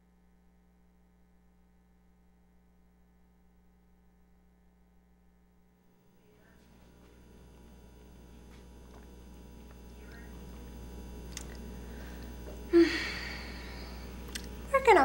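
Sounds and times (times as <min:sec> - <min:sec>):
electrical hum: 0:00.0 - 0:15.0
person sighing: 0:11.8 - 0:14.2.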